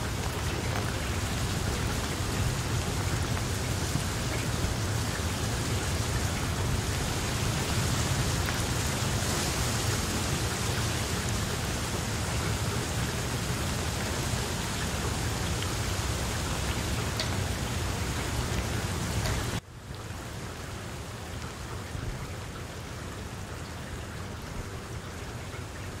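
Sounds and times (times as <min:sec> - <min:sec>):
rain falling on leaves: 0:00.0 - 0:26.0.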